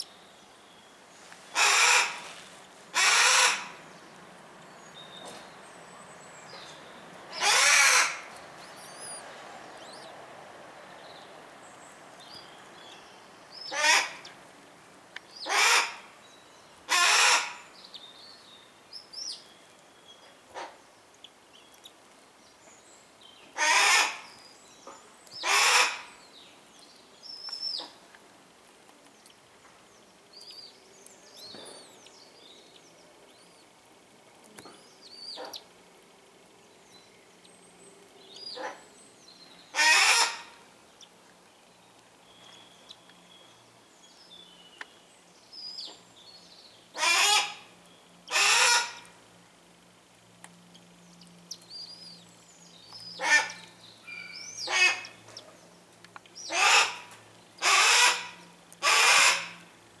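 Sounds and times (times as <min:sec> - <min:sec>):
hawk harsh rasping calls: 0:01.5 - 0:02.3, 0:02.9 - 0:03.8, 0:07.3 - 0:08.3, 0:13.7 - 0:14.3, 0:15.4 - 0:16.1, 0:16.9 - 0:17.6, 0:23.6 - 0:24.2, 0:25.4 - 0:26.1, 0:39.7 - 0:40.6, 0:47.0 - 0:47.7, 0:48.3 - 0:49.1, 0:53.2 - 0:55.2, 0:56.5 - 0:59.6
thin high peeping calls: 0:06.1 - 0:10.2, 0:38.3 - 0:48.9, 0:50.7 - 0:59.4.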